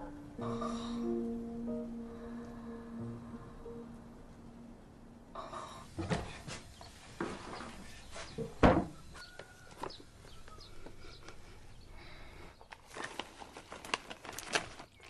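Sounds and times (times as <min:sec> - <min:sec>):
sharp wooden thunk: 0:08.6 - 0:09.0
paper bag rustling: 0:12.7 - 0:15.0.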